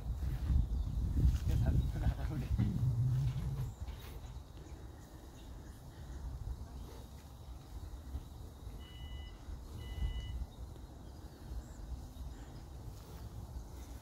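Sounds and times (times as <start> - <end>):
wind buffeting microphone: 0.0 - 8.6
short electronic beeps: 8.8 - 10.5.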